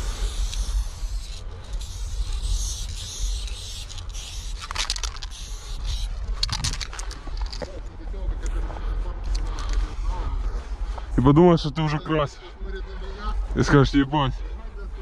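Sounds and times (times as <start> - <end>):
spray-paint can hissing: 0.0 - 6.1
steady low rumble: 0.0 - 15.0
quick rattling clicks: 1.2 - 7.7.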